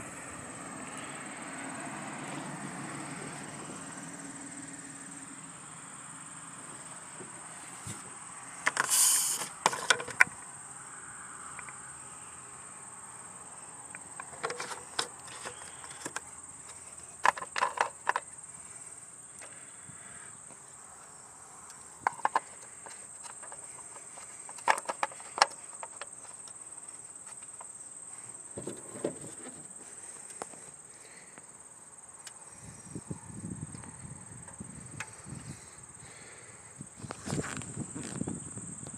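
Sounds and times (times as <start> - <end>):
plastic cap clicking and knocking: 8.7 - 10.4.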